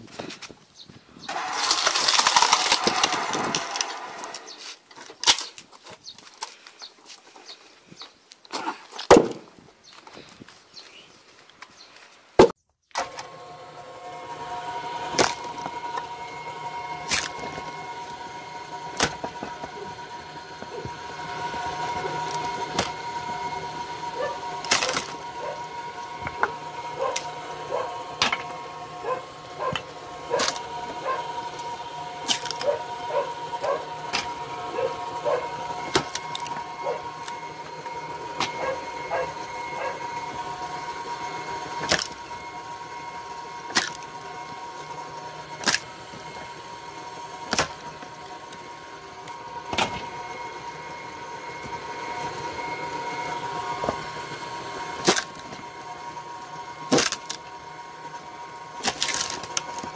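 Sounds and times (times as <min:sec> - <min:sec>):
log splitter motor whining: 0:01.1 - 0:59.9
wood splitting cracks: 0:01.3 - 0:06.6, 0:08.5 - 0:09.5, 0:15.1 - 0:16.1, 0:17.0 - 0:17.7, 0:19.0 - 0:19.8, 0:22.2 - 0:23.0, 0:24.6 - 0:25.2, 0:29.7 - 0:30.7, 0:32.2 - 0:32.8, 0:35.9 - 0:36.6, 0:41.8 - 0:42.2, 0:43.7 - 0:44.1, 0:45.6 - 0:45.9, 0:47.4 - 0:47.9, 0:55.0 - 0:55.6, 0:56.9 - 0:57.4, 0:58.8 - 0:59.9
heavy knocks of logs: 0:09.0 - 0:09.5.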